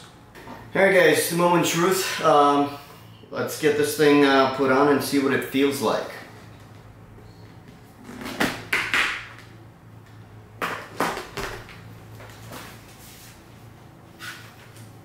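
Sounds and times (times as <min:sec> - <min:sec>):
motorcycle helmet knocks and scrapes: 0:08.0 - 0:09.1.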